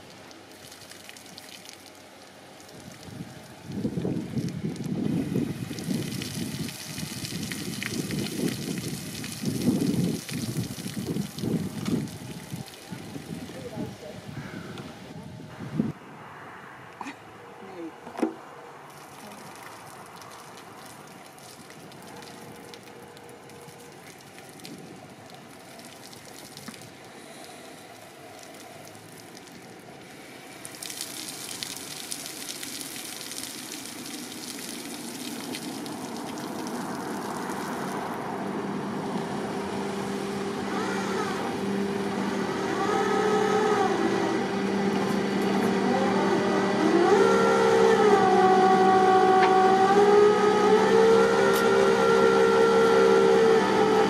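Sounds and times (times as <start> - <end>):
water spraying with a hiss: 0.0 - 14.1, 18.9 - 54.0
motor running: 39.6 - 54.0.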